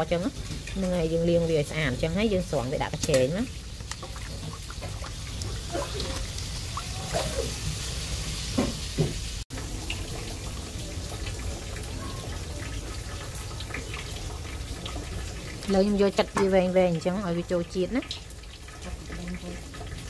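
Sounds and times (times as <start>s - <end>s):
water sloshing in a steel basin: 0.0s - 8.9s.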